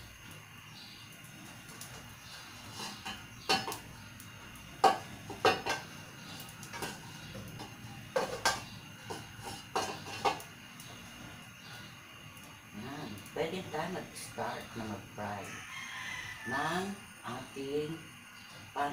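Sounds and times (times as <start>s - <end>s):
metal wok clanking and scraping: 2.5s - 3.9s, 4.8s - 10.5s.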